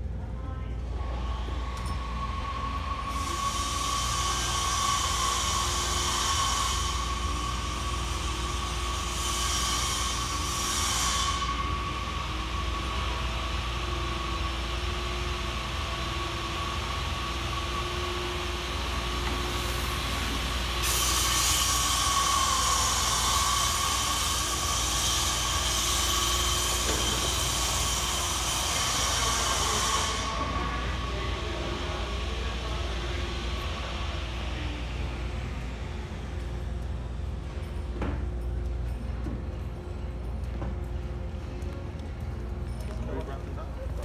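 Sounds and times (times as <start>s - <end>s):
machinery hum: 0.0s - 44.0s
loud hiss: 2.6s - 32.1s.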